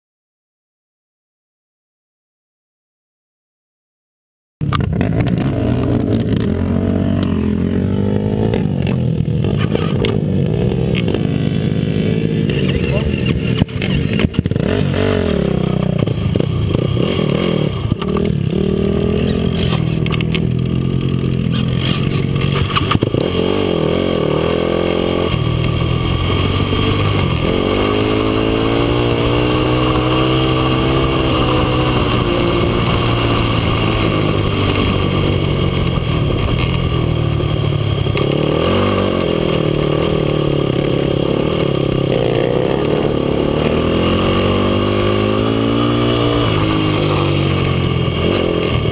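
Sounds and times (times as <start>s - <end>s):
quad bike engine revving: 4.6s - 48.9s.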